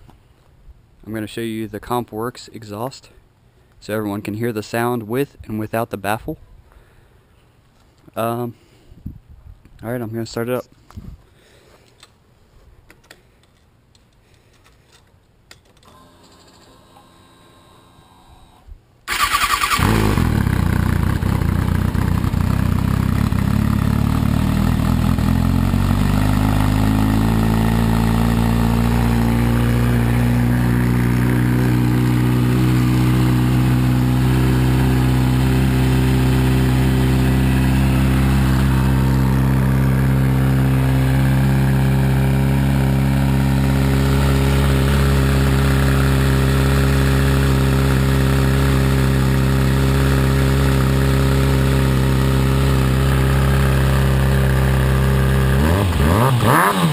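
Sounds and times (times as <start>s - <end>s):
motorcycle engine idling: 19.1s - 56.9s.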